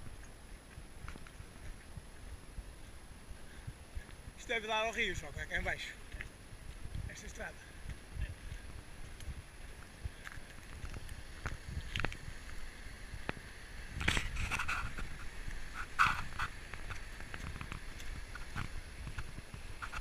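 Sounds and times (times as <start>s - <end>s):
footsteps on gravel: 4.0s - 20.0s.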